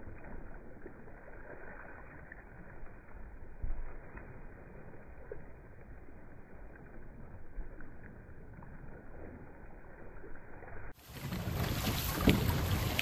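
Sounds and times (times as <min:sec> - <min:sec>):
paddles splashing: 0:00.0 - 0:13.0
water rushing along hull: 0:00.0 - 0:13.0
wind on microphone: 0:11.0 - 0:13.0.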